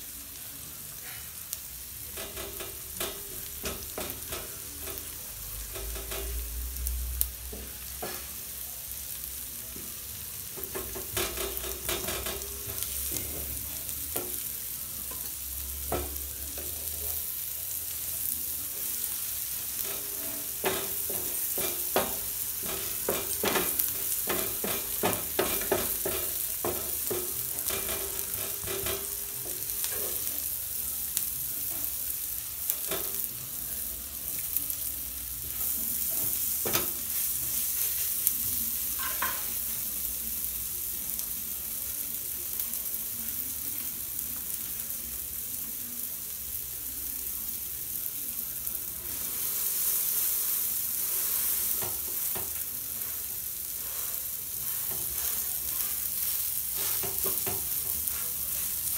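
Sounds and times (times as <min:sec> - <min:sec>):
butter sizzling in a pan: 0:00.0 - 0:58.9
utensil clacking against pan: 0:02.1 - 0:06.4, 0:10.6 - 0:13.5, 0:19.8 - 0:29.2.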